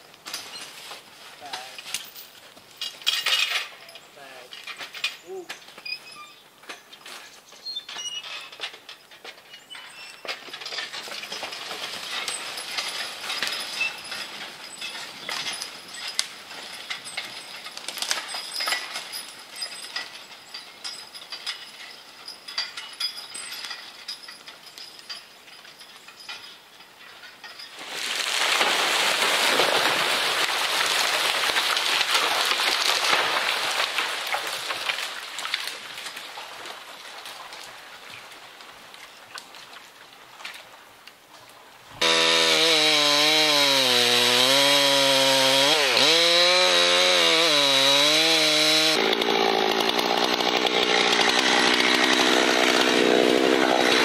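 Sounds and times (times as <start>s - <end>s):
harness and chains clinking: 0.2s - 0.7s, 1.4s - 7.2s, 7.8s - 27.9s
log dragging: 27.7s - 54.0s.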